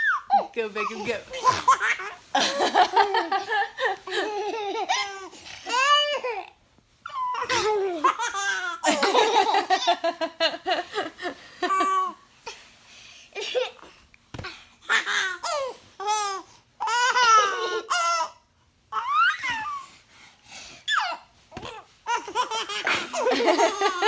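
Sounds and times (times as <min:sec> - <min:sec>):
baby laughing: 0:01.3 - 0:06.3, 0:16.8 - 0:18.3, 0:20.9 - 0:24.0.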